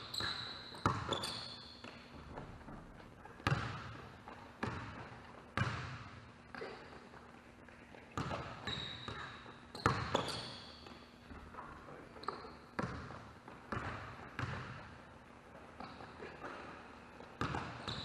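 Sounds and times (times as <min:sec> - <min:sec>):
sneaker squeaks: 0:00.0 - 0:04.0, 0:08.2 - 0:13.1, 0:17.4 - 0:18.0.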